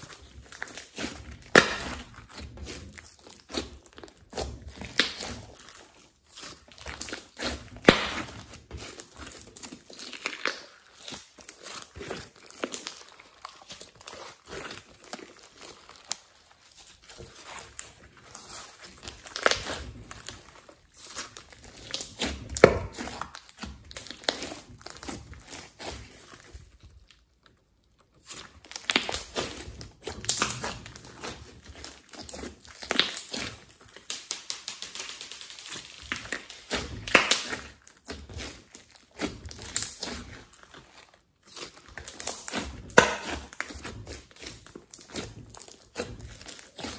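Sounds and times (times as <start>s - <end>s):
slime squeezed by hand clicking: 32.8s - 37.7s.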